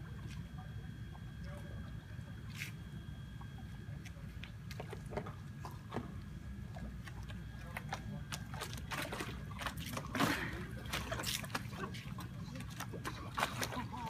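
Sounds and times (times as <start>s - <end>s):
water splashing: 3.4s - 14.0s.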